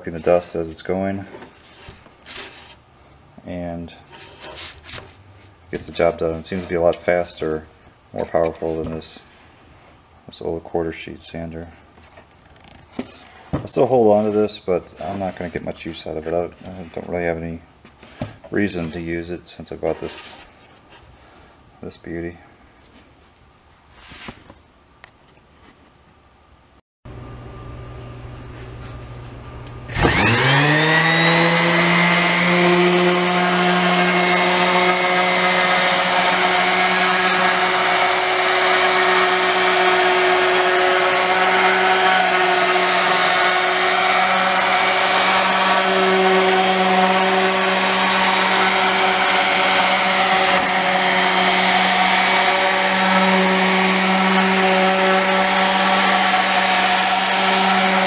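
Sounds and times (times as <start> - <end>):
orbit sander motor: 29.9 - 58.0
sanding wooden boards: 30.1 - 58.0.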